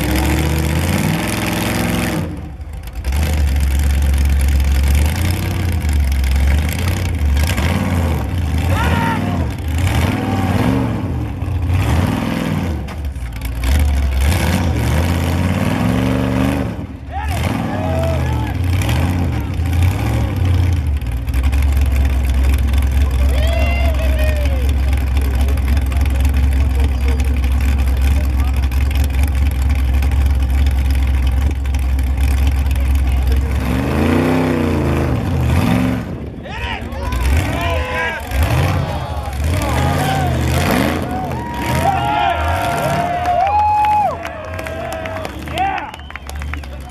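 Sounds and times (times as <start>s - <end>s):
car engine revving over idle: 0.0s - 46.9s.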